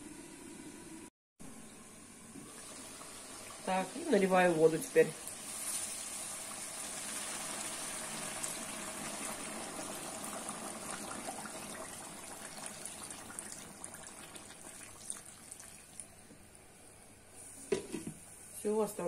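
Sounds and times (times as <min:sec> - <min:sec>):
water pouring into a pot: 0:02.3 - 0:16.2.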